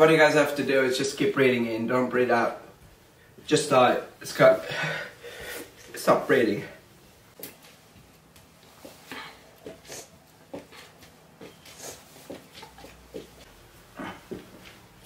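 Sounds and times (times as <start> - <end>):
jacket rustling: 3.0 - 15.0
man's nasal intakes of breath: 4.7 - 5.8.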